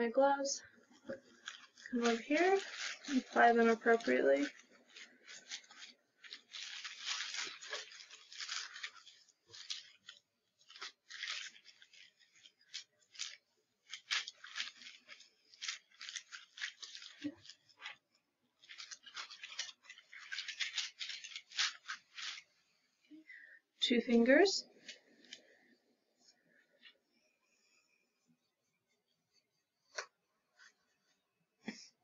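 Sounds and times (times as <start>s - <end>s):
paper wrapper rustling: 0.8s - 22.9s, 24.7s - 27.2s.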